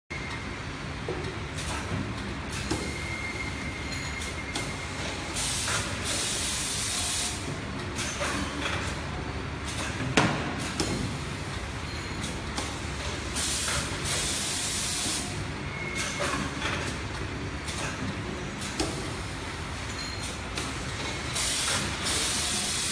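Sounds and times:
bagging machine running: 20.4s - 22.9s.

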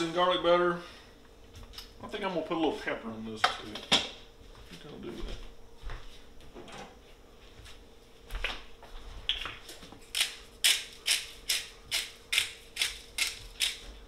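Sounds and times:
pepper mill grinding: 10.1s - 14.0s.

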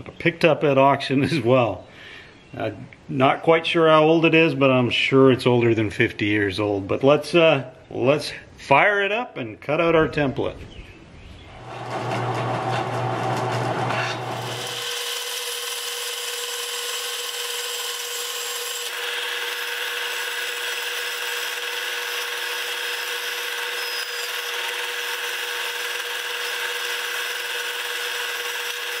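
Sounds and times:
bandsaw cutting wood: 11.6s - 29.0s.

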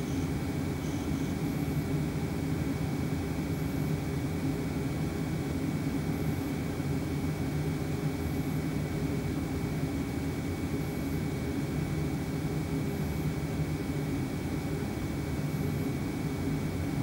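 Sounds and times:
faint high whine: 0.0s - 1.9s
cabin heater hum and rushing air: 0.0s - 17.0s.

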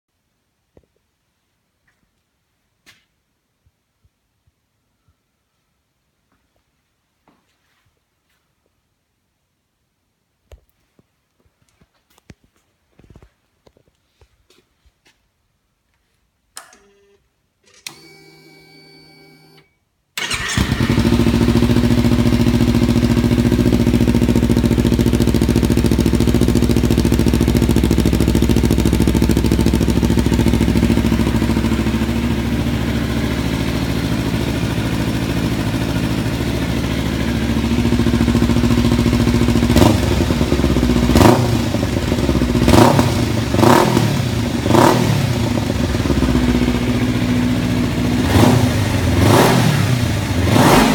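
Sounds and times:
motorcycle engine starting and idling: 16.6s - 50.9s
motorcycle engine revving: 20.2s - 50.9s.

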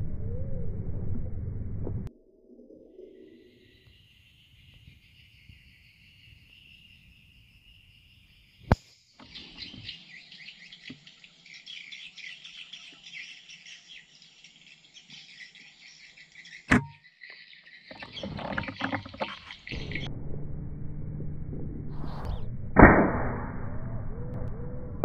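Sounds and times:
birds and insects chirping: 3.1s - 20.1s.

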